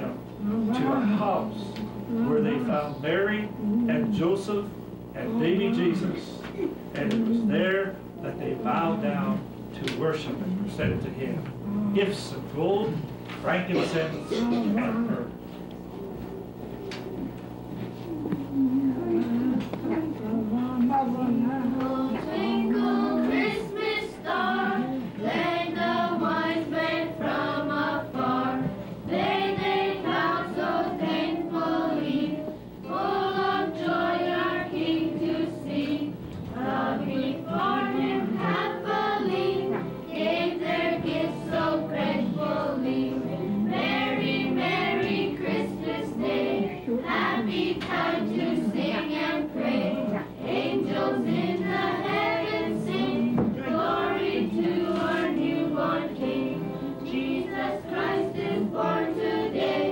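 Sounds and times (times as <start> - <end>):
children and women singing carol: 18.0 - 59.9.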